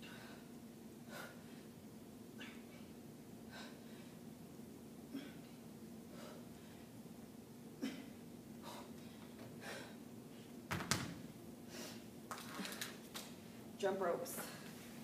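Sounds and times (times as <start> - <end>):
dumbbells clunking on hard floor: 10.7 - 11.2.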